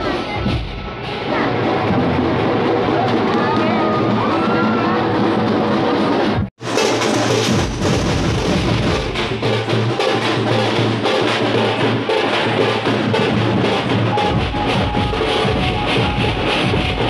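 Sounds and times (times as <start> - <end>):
procession drums beating: 0.0 - 17.0
deep bass beat: 12.6 - 17.0.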